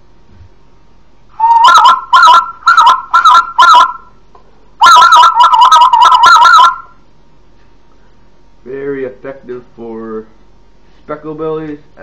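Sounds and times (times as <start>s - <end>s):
goose call honks: 1.4s - 4.0s, 4.8s - 6.9s.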